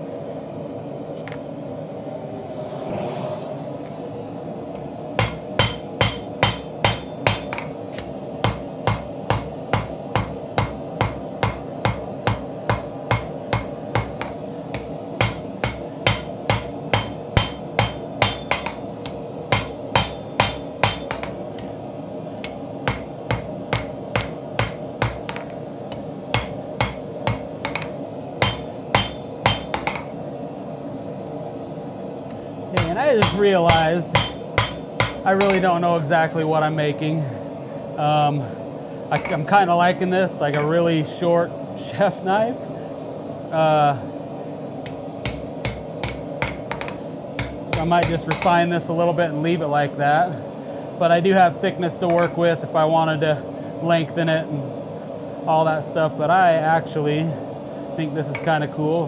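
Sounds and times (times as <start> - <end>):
steady low hum: 0.0 - 59.0
hammer striking steel on anvil: 5.2 - 21.8, 22.4 - 30.2, 32.8 - 35.8, 39.2 - 39.4, 44.8 - 48.6.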